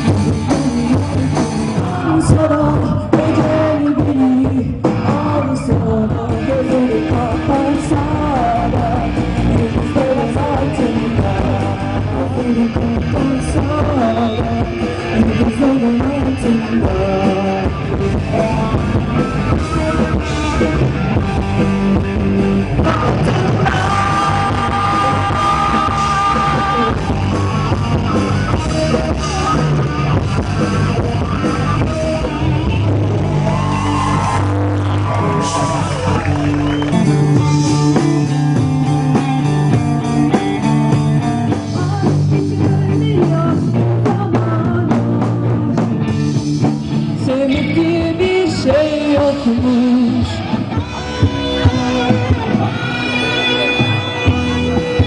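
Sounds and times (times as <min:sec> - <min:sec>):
bass guitar: 0:00.0 - 0:55.0
drum kit: 0:00.0 - 0:55.0
electric guitars: 0:00.0 - 0:55.0
woman singing: 0:01.8 - 0:19.2, 0:41.4 - 0:46.2, 0:47.2 - 0:50.4.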